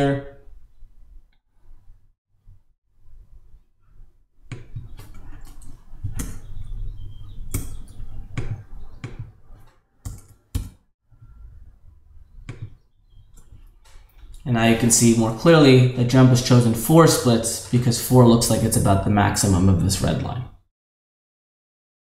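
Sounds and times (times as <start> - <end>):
computer keyboard keystrokes: 10.0 - 10.8.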